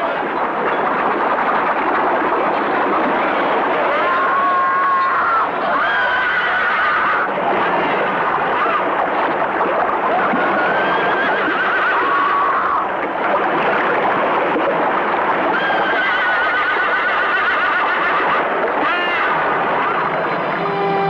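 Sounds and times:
splashing water: 0.0s - 21.0s
horses whinnying: 10.4s - 12.9s, 15.6s - 21.0s.

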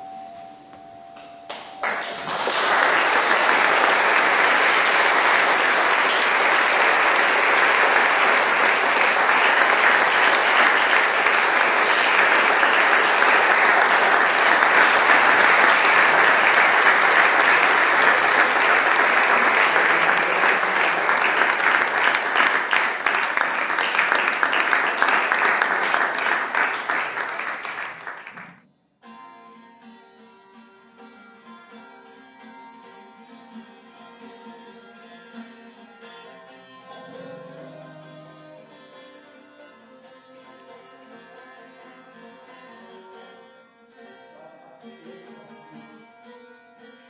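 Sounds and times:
audience applause: 1.5s - 28.6s.

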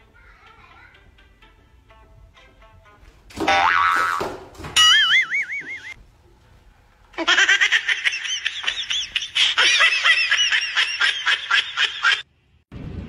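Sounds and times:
cartoon boing sound effect: 3.4s - 6.0s
woman laughing: 7.2s - 12.2s.

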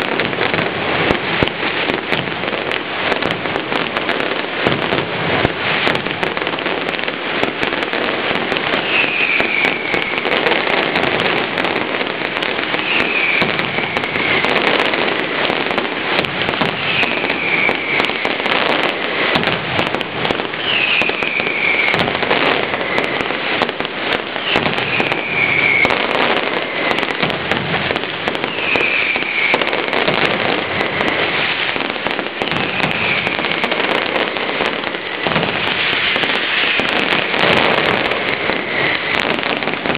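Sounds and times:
firecrackers crackling: 0.0s - 39.9s
falling whistle: 8.8s - 10.3s, 12.7s - 14.4s, 16.8s - 18.2s, 20.6s - 22.1s, 24.4s - 26.2s, 28.4s - 29.8s, 32.6s - 33.6s.

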